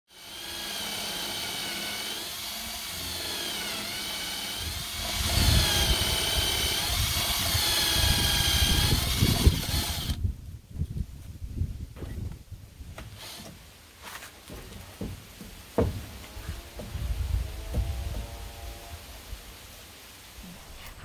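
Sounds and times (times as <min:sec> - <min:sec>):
cordless drill boring into wood: 0:00.1 - 0:10.2, 0:13.2 - 0:13.5.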